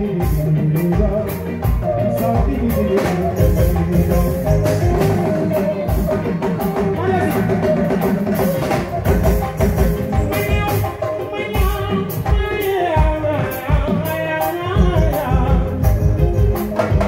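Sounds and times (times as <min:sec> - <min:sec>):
drum kit beat: 0:00.0 - 0:17.0
electric guitar: 0:00.0 - 0:17.0
live band playing dance music: 0:00.0 - 0:17.0.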